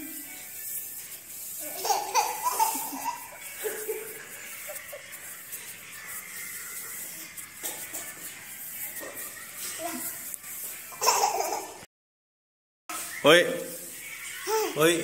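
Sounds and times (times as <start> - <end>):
toddler laughing: 1.6 - 5.3, 10.9 - 11.8.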